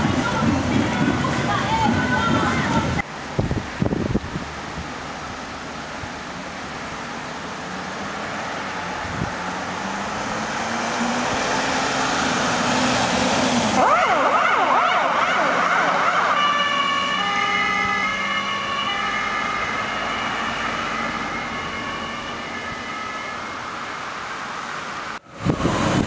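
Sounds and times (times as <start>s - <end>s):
ambulance engine: 4.9s - 26.0s
siren wailing: 13.6s - 24.0s, 25.4s - 26.0s.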